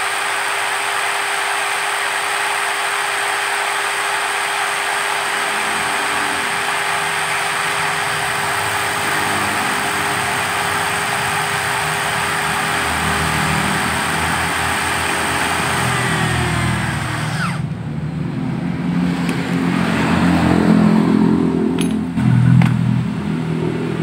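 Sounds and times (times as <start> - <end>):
electric drill whine: 0.0 - 18.2.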